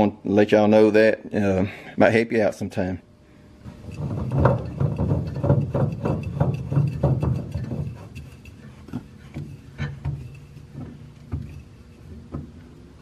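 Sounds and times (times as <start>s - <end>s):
hand rubbing metal filter can: 3.7s - 12.1s.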